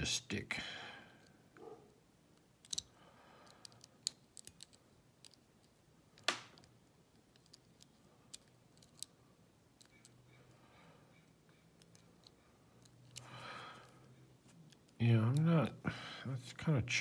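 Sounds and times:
lock pick clicking: 0:02.6 - 0:03.0.

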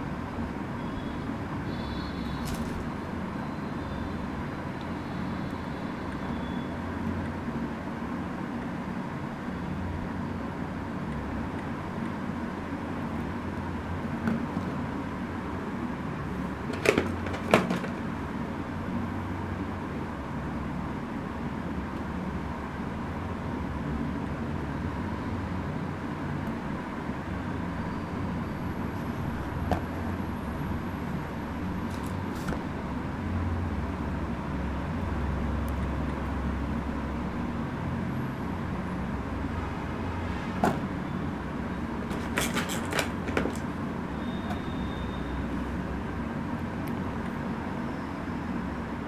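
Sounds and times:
plastic toys clicking together: 0:42.1 - 0:43.6.

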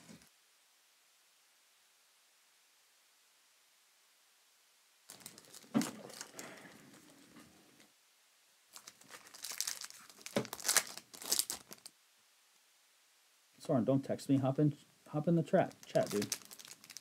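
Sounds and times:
foil wrapper crinkling and tearing: 0:05.1 - 0:07.2, 0:08.7 - 0:11.9, 0:15.6 - 0:17.0.

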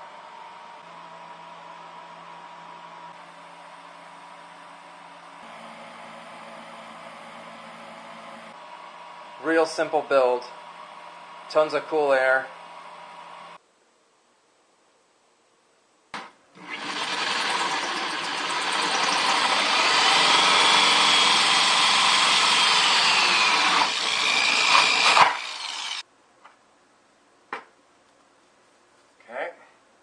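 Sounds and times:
drill hole saw cutting plastic: 0:16.6 - 0:26.0.

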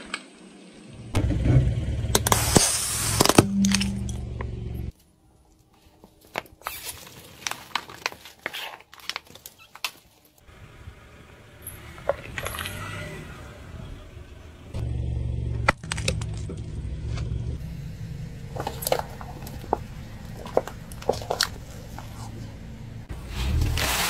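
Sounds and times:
paper cups crushed: 0:06.4 - 0:10.0, 0:18.5 - 0:22.2
car tyre rolling rumble: 0:10.4 - 0:24.0.

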